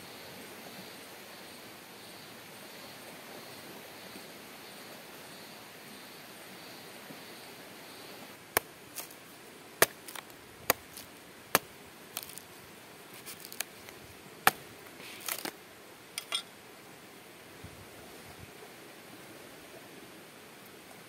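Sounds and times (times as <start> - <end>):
sharp chopping knocks: 9.8 - 11.0.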